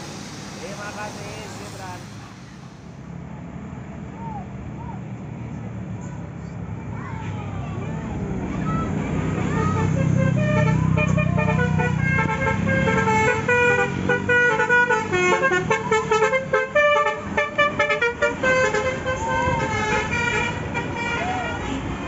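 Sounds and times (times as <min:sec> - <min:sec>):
multi-tone air horn tune: 0:00.0 - 0:03.0, 0:09.6 - 0:21.6
bus engine rumble: 0:00.0 - 0:22.0.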